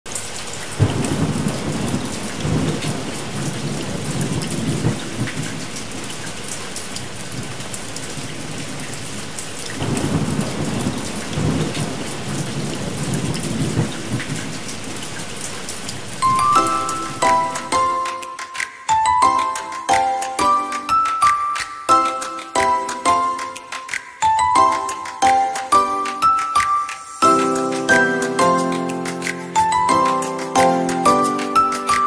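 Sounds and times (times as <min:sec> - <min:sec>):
heavy rain: 0:00.1 - 0:32.0
rolling thunder: 0:00.8 - 0:05.7, 0:09.8 - 0:14.6.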